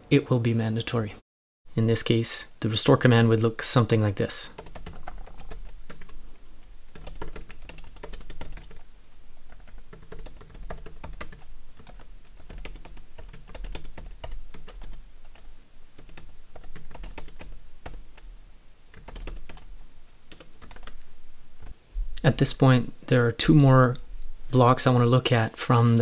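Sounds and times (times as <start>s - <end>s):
typing on computer keyboard: 4.6s - 6.2s, 6.9s - 8.8s, 9.5s - 18.3s, 18.9s - 19.7s, 20.3s - 21.0s.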